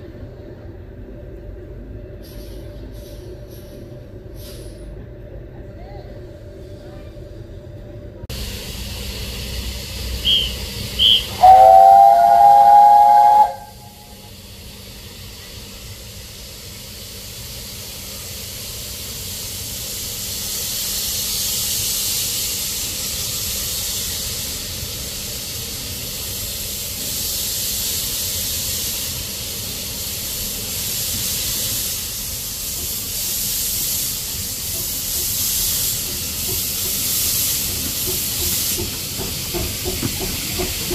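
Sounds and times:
steam hissing: 2.2s - 5.0s, 8.3s - 40.9s
steam whistle: 10.2s - 14.3s.

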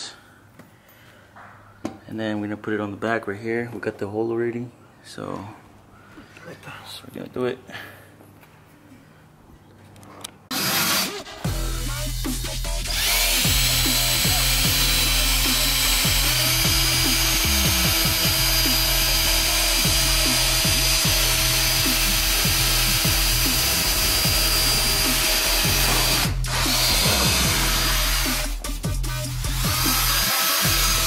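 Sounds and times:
cordless drill whining: 10.5s - 11.5s, 12.9s - 28.6s, 29.4s - 31.0s.

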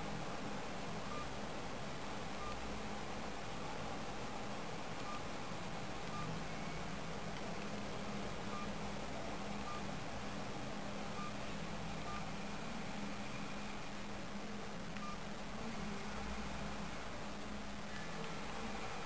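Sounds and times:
steady hiss and low hum: 0.0s - 19.0s
phone keypad beeps: 1.1s - 1.3s, 8.5s - 8.7s, 9.6s - 9.8s, 15.0s - 15.2s.

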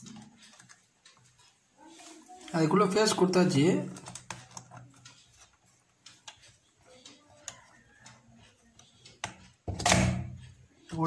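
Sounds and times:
clicks and taps on wires: 3.9s - 11.0s.

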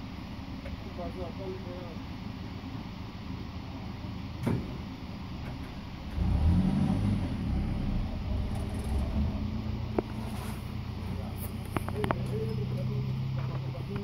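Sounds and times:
petrol engine running: 0.0s - 14.0s.

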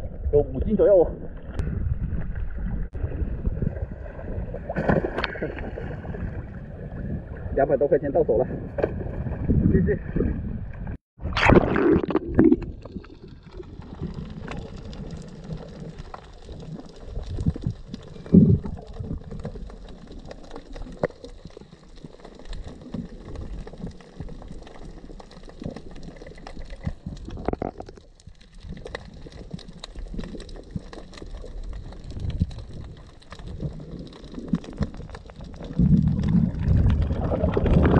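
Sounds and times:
underwater gurgling and bubbling: 0.0s - 7.6s, 9.0s - 37.9s
loud burst of water: 11.2s - 13.0s.

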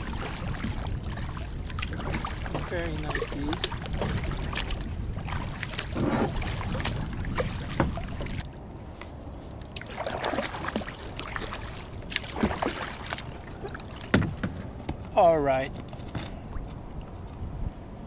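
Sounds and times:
water slapping plastic hull: 0.0s - 8.5s, 9.6s - 14.7s
steady low rumble: 0.0s - 12.4s
paddle strokes splashing water: 0.0s - 14.8s.

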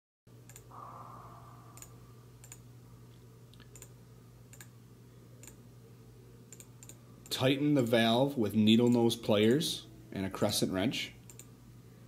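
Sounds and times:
steady low hum: 0.3s - 12.0s.

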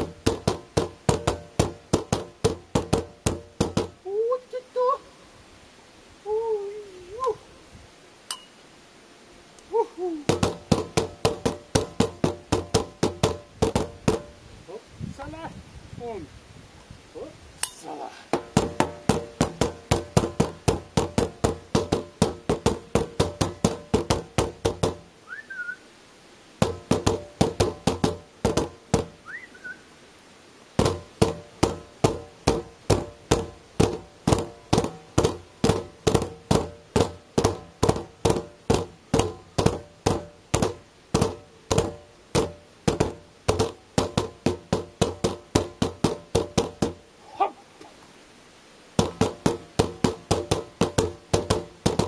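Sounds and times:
sticks drumming on plastic bins: 0.0s - 4.0s, 10.3s - 14.4s, 18.3s - 25.1s, 26.6s - 29.2s, 30.8s - 47.0s, 49.0s - 52.0s.

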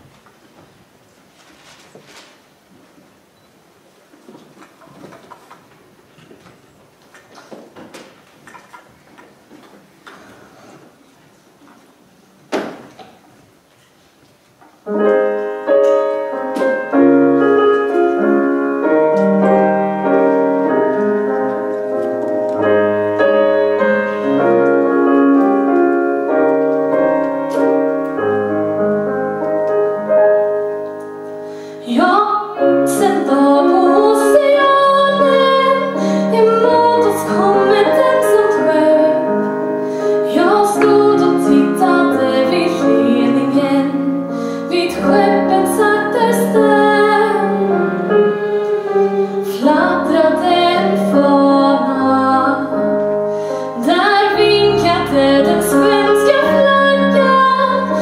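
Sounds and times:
piano chords: 14.8s - 58.0s
woman singing: 31.8s - 39.4s, 40.2s - 53.0s, 53.8s - 58.0s.

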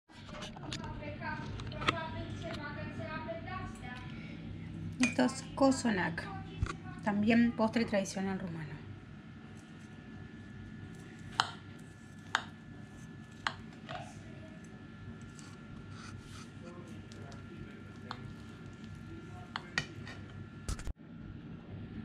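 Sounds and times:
knife cutting cake: 9.4s - 20.9s.

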